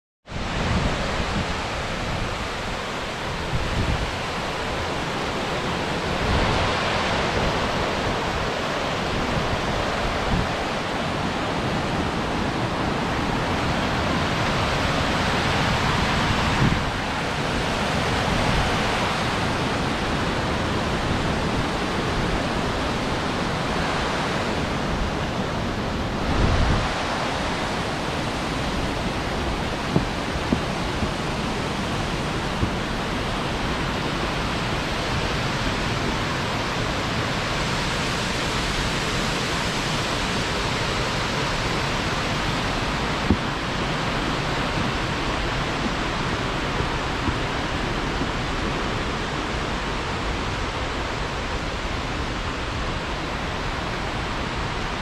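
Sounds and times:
waterfall rushing: 0.3 - 55.0.

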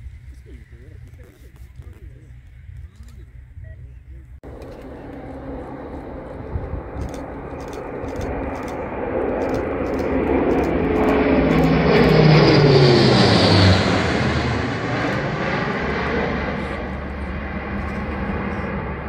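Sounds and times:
propeller aircraft passing overhead: 0.0 - 19.0.

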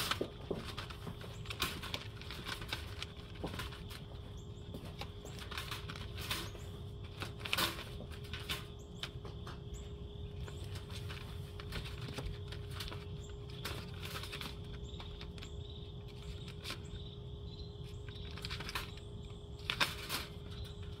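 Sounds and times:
cat rattling wire cage: 0.0 - 4.0, 5.2 - 8.8, 18.2 - 21.0
faint steady hum: 0.0 - 21.0.

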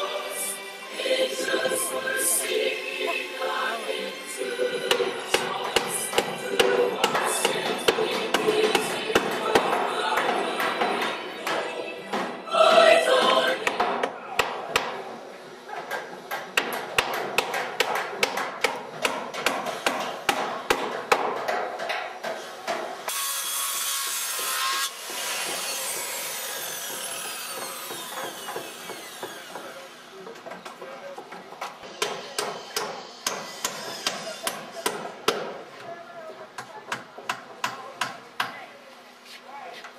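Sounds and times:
hammers driving nails into wood: 16.3 - 22.9, 25.1 - 29.7, 32.0 - 35.6
circular saw cutting board: 23.1 - 30.3.

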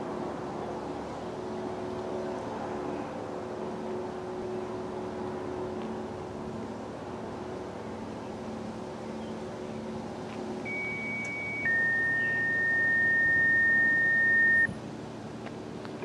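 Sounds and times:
low steady hum: 0.0 - 16.0
two-tone paging tones: 10.7 - 14.7.

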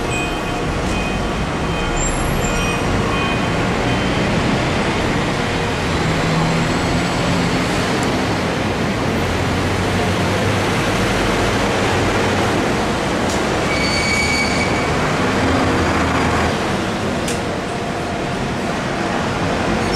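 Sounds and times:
high squeal: 13.7 - 15.1.

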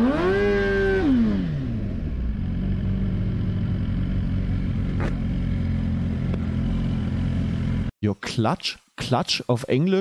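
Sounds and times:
motorcycle engine revving: 0.0 - 7.9.

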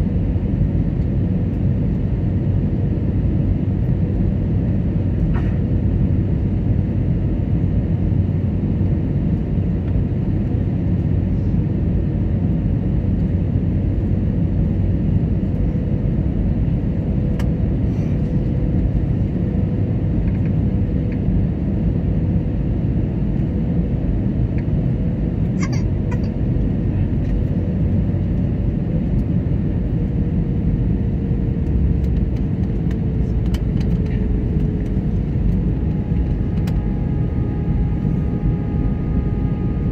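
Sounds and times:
airliner cabin rumble: 0.0 - 39.9
faint hum dropping in pitch: 25.4 - 39.9.

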